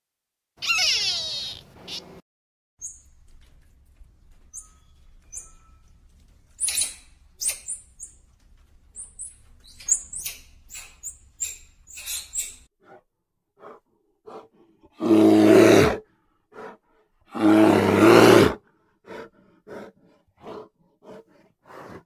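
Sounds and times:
high-pitched animal chirps: 0:00.6 - 0:02.1.

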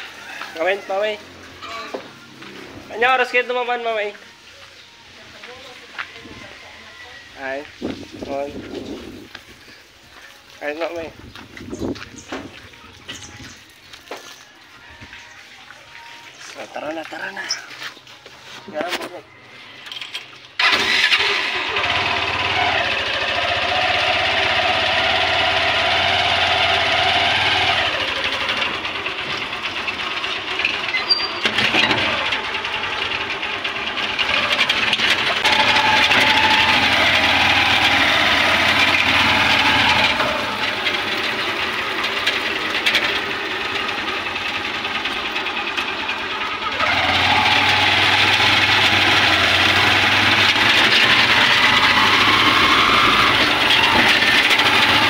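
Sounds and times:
motorcycle engine running: 0:21.6 - 0:55.0.

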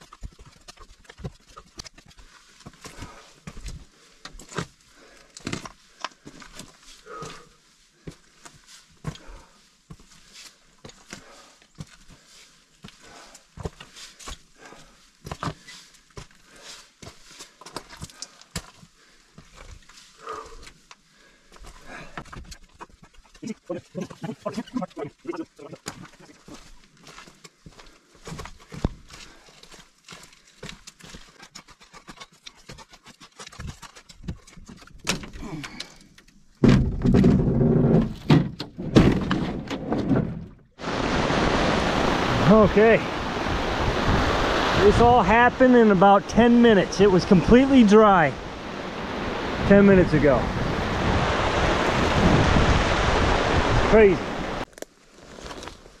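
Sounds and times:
footsteps on rock and brush: 0:00.0 - 0:21.0, 0:25.8 - 0:34.7, 0:54.6 - 0:56.0
grunt-like breath: 0:07.0 - 0:07.6, 0:20.2 - 0:22.3, 0:35.4 - 0:36.1
dull thumps and knocks: 0:36.6 - 0:40.6
steady rushing hiss: 0:40.8 - 0:54.6.

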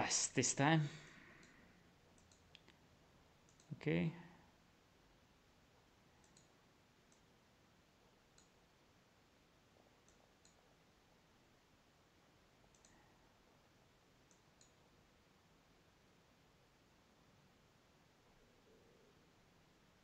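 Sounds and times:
computer mouse clicks: 0:01.4 - 0:02.8, 0:03.4 - 0:03.8, 0:06.2 - 0:07.3, 0:08.3 - 0:08.6, 0:10.0 - 0:10.7, 0:12.7 - 0:13.0, 0:14.2 - 0:14.8.

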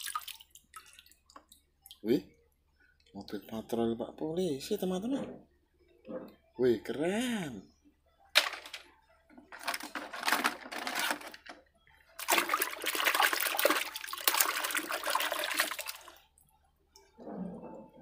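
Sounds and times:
water swishing: 0:12.2 - 0:16.3.

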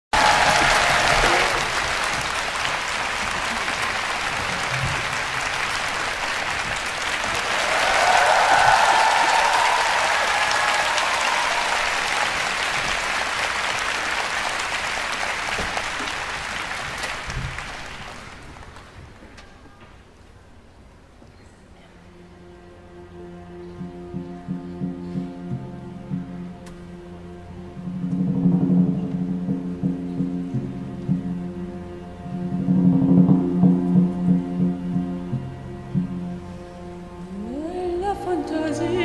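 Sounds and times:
audience applauding: 0:00.0 - 0:19.2.

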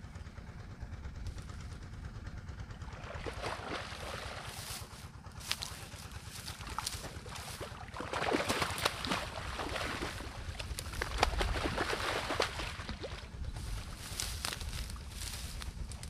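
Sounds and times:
water splashing: 0:02.9 - 0:14.3
dry reeds rustling: 0:04.0 - 0:07.8, 0:08.8 - 0:16.0.

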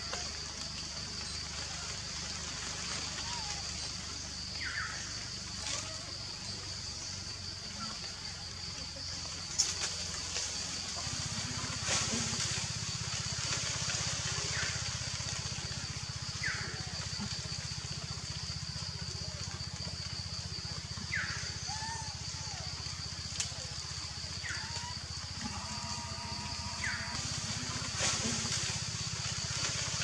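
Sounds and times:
high-pitched forest hiss: 0:00.0 - 0:30.0.

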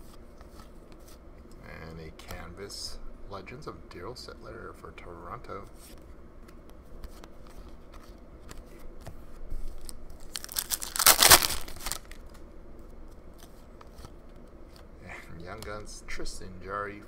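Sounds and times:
trading cards being handled: 0:05.6 - 0:12.4
foil wrapper crinkling and tearing: 0:09.7 - 0:12.3.

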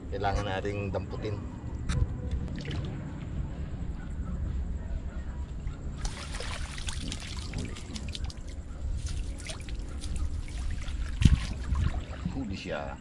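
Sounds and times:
water sloshing from wading: 0:05.9 - 0:12.8
water pouring off a net: 0:06.0 - 0:12.4.

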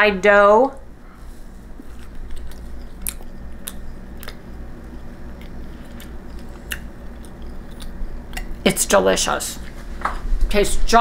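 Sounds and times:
low steady hum: 0:00.0 - 0:11.0
person chewing bread: 0:01.2 - 0:08.6.

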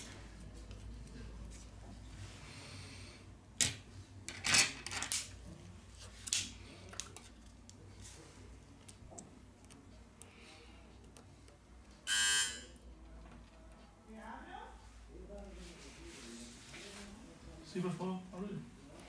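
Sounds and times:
soft handling rustle: 0:00.0 - 0:02.6, 0:13.0 - 0:19.0.

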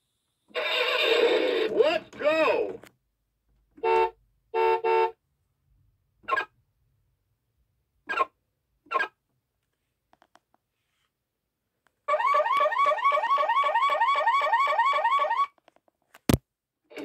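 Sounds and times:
electronic car-alarm whoop: 0:12.1 - 0:15.5.

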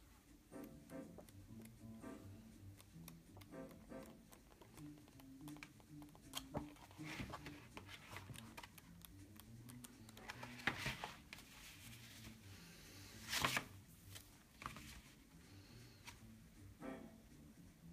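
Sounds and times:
book pages flipping: 0:02.8 - 0:12.4, 0:13.2 - 0:15.3, 0:16.0 - 0:16.2
book closed on a table: 0:06.3 - 0:08.8, 0:10.2 - 0:12.4, 0:13.2 - 0:15.1.

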